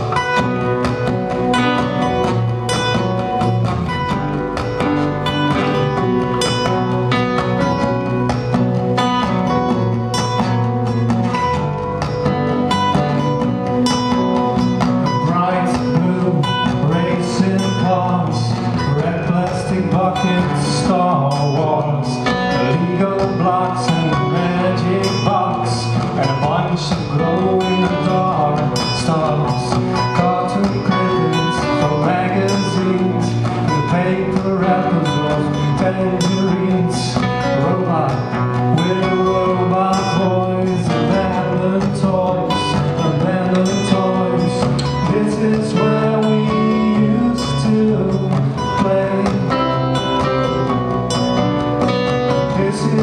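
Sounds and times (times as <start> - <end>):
electric guitar: 0.0 - 53.0
strummed acoustic guitar: 0.0 - 53.0
man singing: 14.0 - 53.0.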